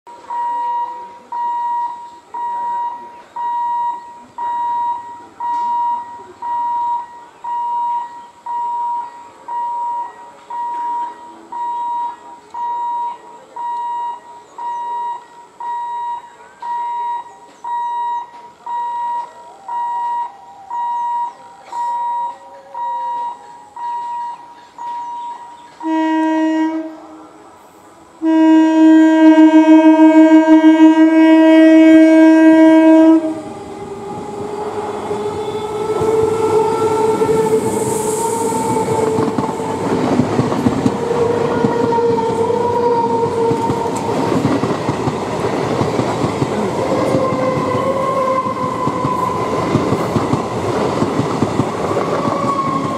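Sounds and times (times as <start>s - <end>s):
train horn blasts: 25.8s - 44.7s, 46.5s - 50.2s.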